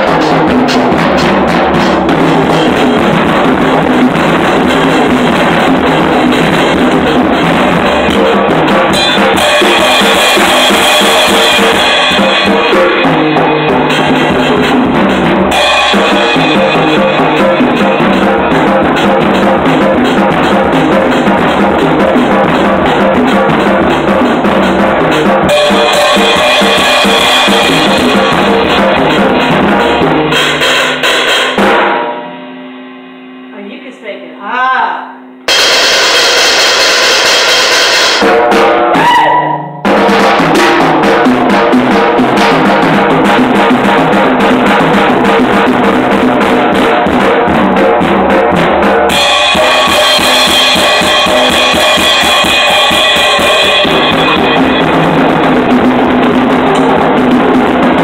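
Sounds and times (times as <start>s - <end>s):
acoustic drum kit playing: 0.0s - 58.0s.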